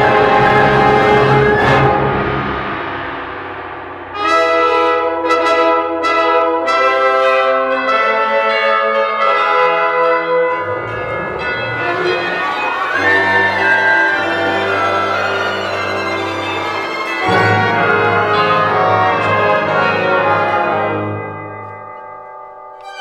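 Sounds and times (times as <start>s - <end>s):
brass chords: 0.0s - 23.0s
orchestra chord: 10.5s - 22.2s
pealing bell strokes: 10.6s - 23.0s.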